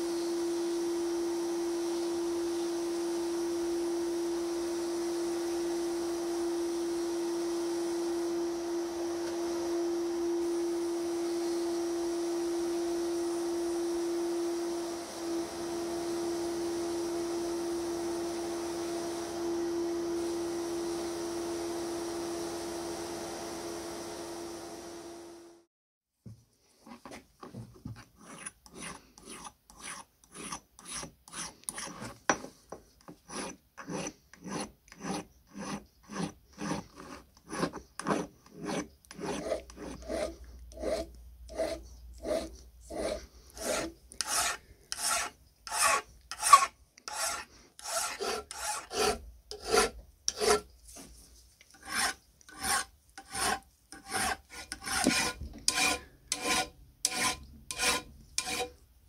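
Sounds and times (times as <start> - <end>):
hand file rasping on metal: 28.0 - 50.7, 51.7 - 58.8.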